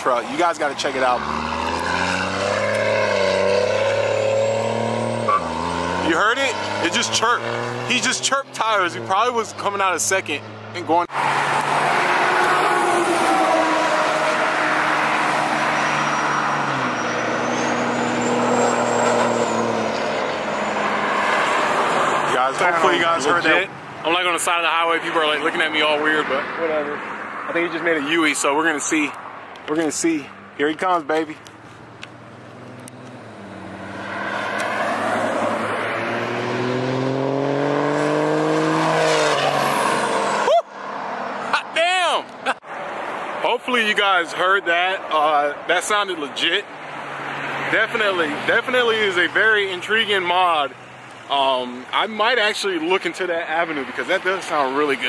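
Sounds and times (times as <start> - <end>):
road noise: 0.0 - 55.0
diesel engine accelerating: 0.6 - 23.7, 30.2 - 40.6
high turbo whistle: 11.1 - 19.8.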